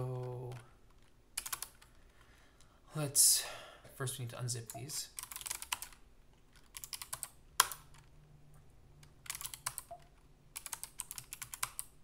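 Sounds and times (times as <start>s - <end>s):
typing on computer keyboard: 0.1s - 2.0s, 5.2s - 8.1s, 9.0s - 12.0s.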